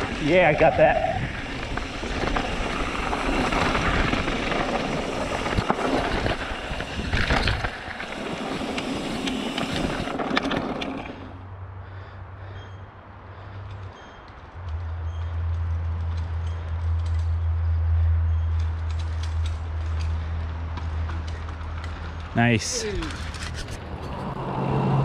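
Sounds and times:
wind rushing over microphone: 0:00.0 - 0:10.9
bike rattling over rocks: 0:00.0 - 0:11.4.

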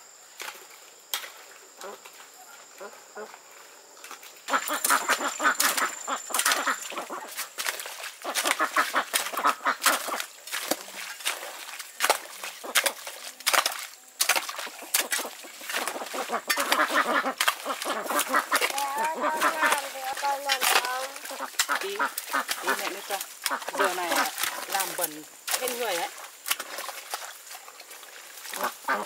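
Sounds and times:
ducks quacking: 0:04.5 - 0:11.0, 0:15.0 - 0:25.1, 0:28.4 - 0:29.0.

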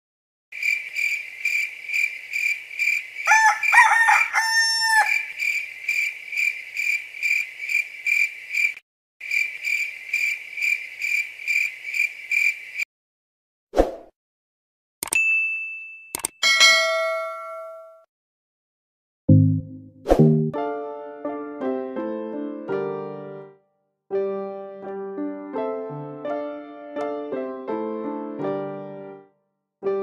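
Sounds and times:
crickets chirping: 0:00.6 - 0:04.3, 0:05.0 - 0:12.8
rooster crowing: 0:03.2 - 0:05.4.

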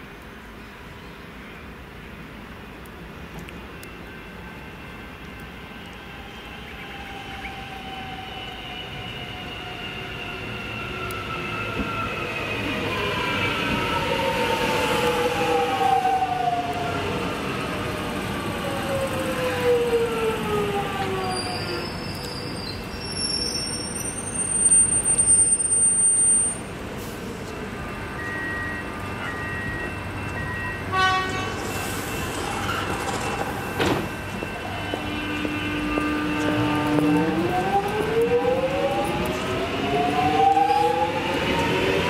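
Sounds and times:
train drive whining: 0:06.1 - 0:42.0
electric train braking: 0:28.1 - 0:42.0.

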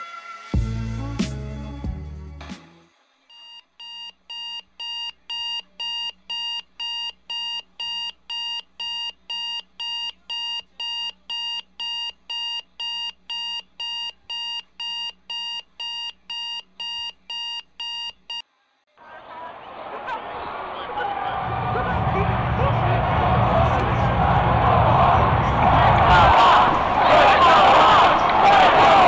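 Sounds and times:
music: 0:00.0 - 0:03.4
alarm clock beeping: 0:03.3 - 0:18.4.

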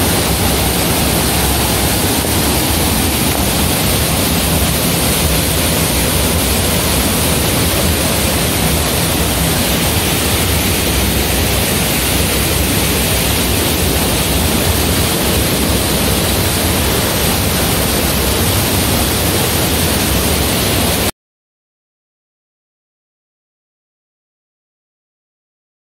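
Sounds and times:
waterfall rushing into pool: 0:00.0 - 0:21.1.

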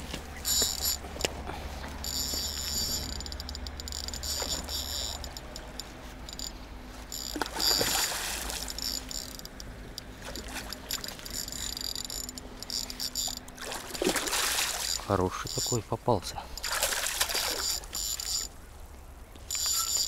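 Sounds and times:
high rattling whir: 0:00.4 - 0:15.7
fish thrashing and splashing in water: 0:07.3 - 0:09.1, 0:10.1 - 0:11.5, 0:13.4 - 0:15.1, 0:16.6 - 0:18.3.

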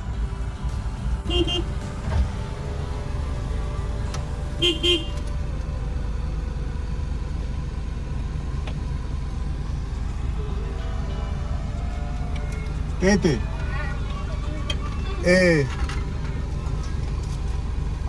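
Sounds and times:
car engine idling: 0:00.0 - 0:18.0
car horn beeps: 0:01.2 - 0:05.3.

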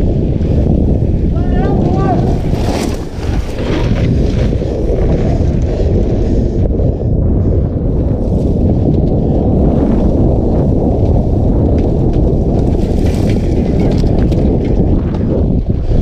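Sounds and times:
wind buffeting microphone: 0:00.0 - 0:16.0
bike clicks and rattles: 0:01.8 - 0:06.3, 0:10.8 - 0:16.0.

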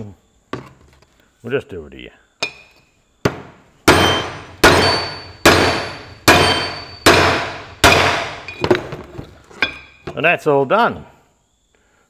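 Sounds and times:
hammer blows on metal: 0:02.4 - 0:08.6.

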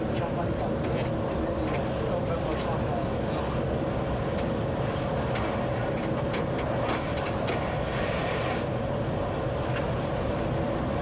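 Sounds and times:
train rumble and hum: 0:00.0 - 0:11.0.

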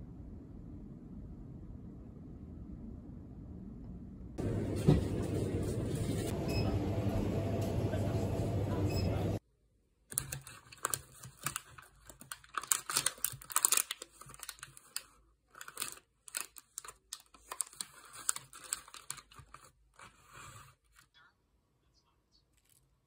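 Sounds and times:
shop background noise: 0:04.4 - 0:09.4
plastic wrappers crinkling: 0:10.1 - 0:21.0.

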